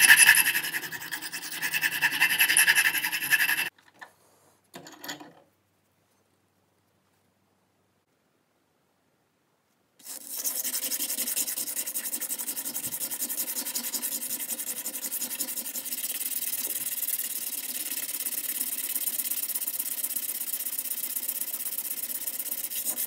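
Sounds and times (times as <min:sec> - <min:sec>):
metal ring scraping on sandpaper: 0:00.0 - 0:03.7, 0:10.0 - 0:23.0.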